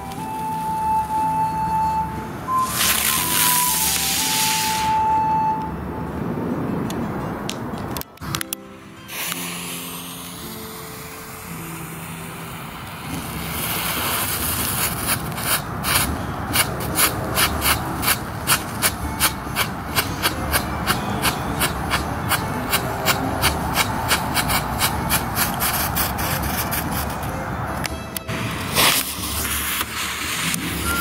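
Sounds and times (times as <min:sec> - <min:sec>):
firework fountain hissing: 0:00.0 - 0:05.6, 0:09.0 - 0:27.3, 0:28.3 - 0:31.0
fuse sparking: 0:02.5 - 0:05.4, 0:09.1 - 0:27.3, 0:28.4 - 0:31.0
sharp strobe pops: 0:02.6 - 0:04.9, 0:09.1 - 0:11.6, 0:13.0 - 0:25.8, 0:28.7 - 0:30.8.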